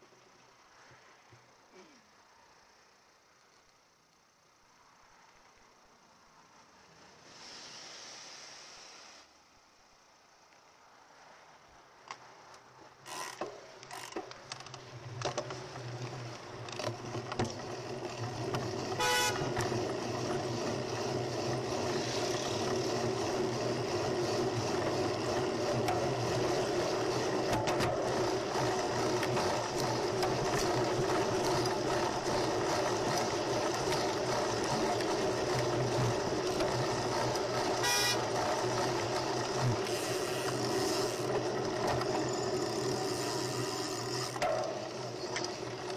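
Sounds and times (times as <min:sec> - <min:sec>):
road noise: 0:00.0 - 0:45.9
car horn toot: 0:19.0 - 0:19.5, 0:37.8 - 0:38.2.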